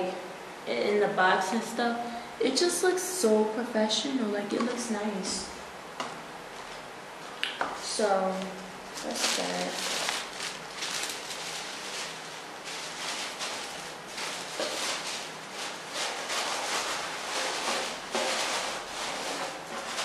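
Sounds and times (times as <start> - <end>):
tissue paper rustling: 8.9 - 20.0.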